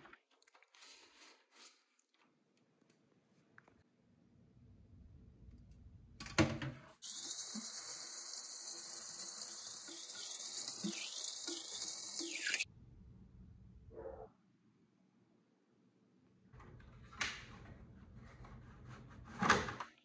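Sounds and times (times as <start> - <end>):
tap water running into sink: 7.0 - 12.6.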